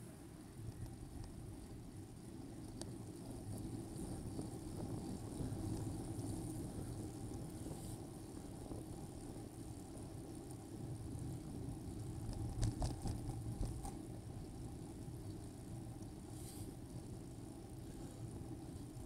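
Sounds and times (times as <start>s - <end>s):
bicycle tyres on road: 0.0s - 19.0s
faint tick: 0.6s - 1.4s, 2.7s - 3.0s.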